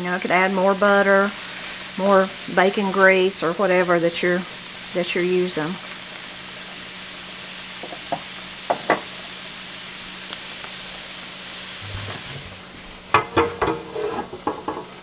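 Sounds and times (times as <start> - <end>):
cabbage sizzling in skillet: 0.0 - 15.0
metal baking sheet clanking: 13.1 - 14.9.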